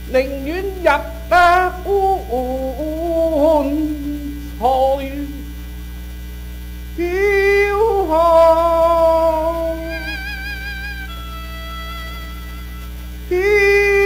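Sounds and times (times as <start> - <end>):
electrical mains hum: 0.0 - 14.0
opera music: 7.2 - 14.0.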